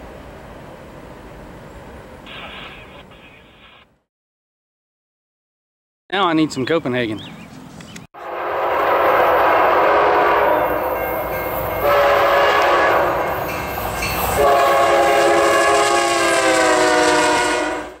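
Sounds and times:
locomotive air horn blasts: 8.2s - 13.5s, 14.3s - 18.0s.

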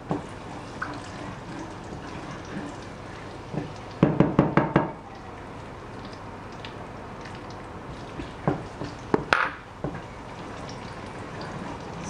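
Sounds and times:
utensil knocking on saucepan: 4.0s - 5.0s, 8.4s - 10.0s.

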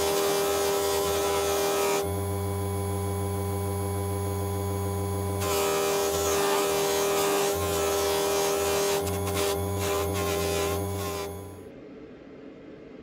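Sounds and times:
polishing machine humming: 0.0s - 11.6s
steel rod on polishing wheel: 5.4s - 11.6s.

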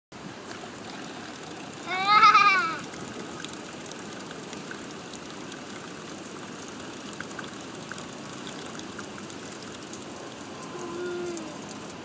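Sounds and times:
faint drips: 0.4s - 12.0s
water splashing on concrete: 0.4s - 12.0s.

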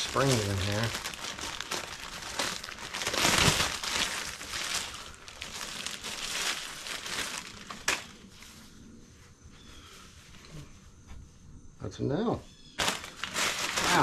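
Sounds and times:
plastic bag crinkling: 0.0s - 8.4s, 12.8s - 14.0s.

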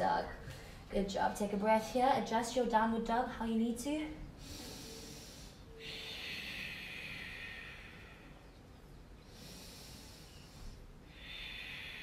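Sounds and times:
woman breathing through narrowed throat: 4.4s - 8.6s, 9.2s - 12.0s.

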